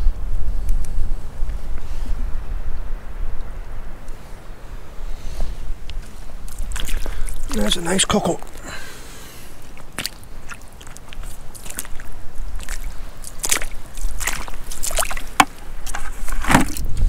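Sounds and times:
boots squelching in wet sand: 0:05.9 - 0:16.9.

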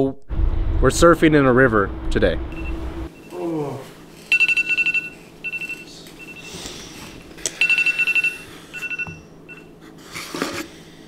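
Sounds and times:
electronic alarm beeping: 0:02.5 - 0:03.4, 0:04.3 - 0:06.6, 0:07.6 - 0:09.7
short vocal sound: 0:03.3 - 0:04.0.

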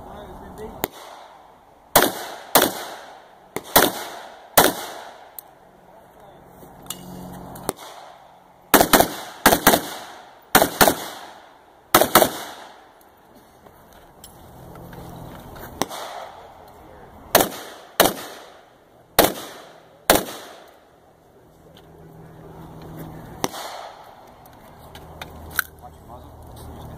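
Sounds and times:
rifle gunshots with echo: 0:00.8 - 0:05.4, 0:07.7 - 0:12.8, 0:15.8 - 0:16.5, 0:17.3 - 0:20.7, 0:23.4 - 0:24.0.

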